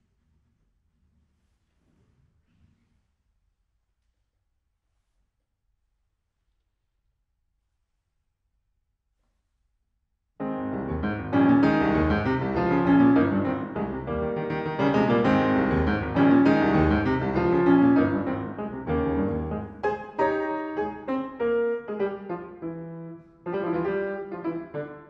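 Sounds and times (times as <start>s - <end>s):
solo piano chords: 10.4s - 25.0s.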